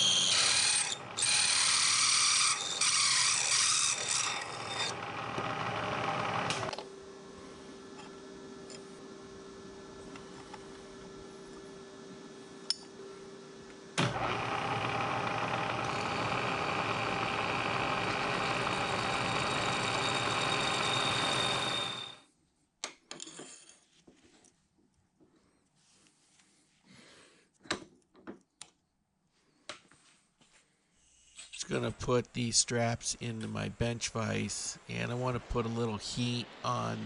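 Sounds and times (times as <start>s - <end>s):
drill cutting steel: 0.0s - 5.0s, 14.1s - 22.2s
milling machine spindle humming: 0.0s - 6.7s, 14.0s - 22.2s.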